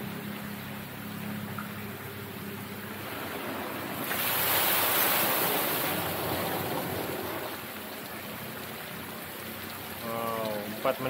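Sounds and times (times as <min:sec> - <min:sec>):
water crashing into pool: 0:02.9 - 0:08.2.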